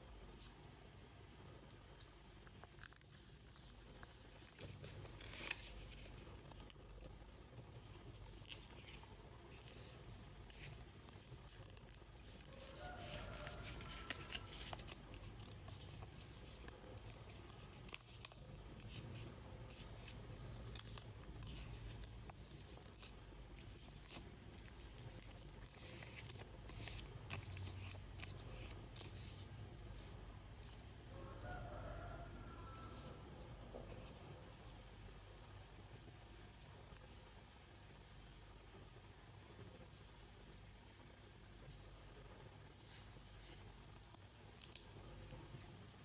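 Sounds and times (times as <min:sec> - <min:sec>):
paper being folded and creased: 0:02.8 - 0:07.2, 0:07.8 - 0:30.8.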